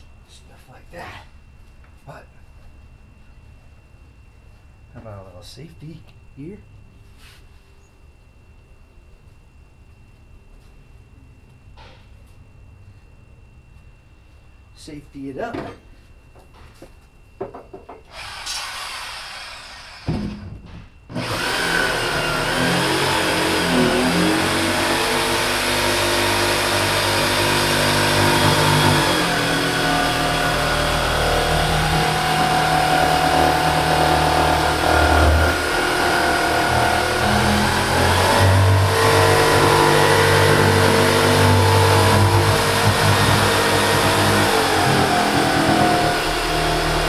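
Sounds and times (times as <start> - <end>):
electric jigsaw cutting: 18.1 - 20.3, 21.1 - 47.0.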